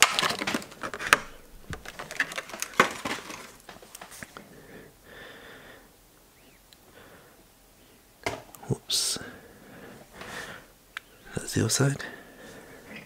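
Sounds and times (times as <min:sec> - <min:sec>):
faint rustling: 0:00.1 - 0:04.7.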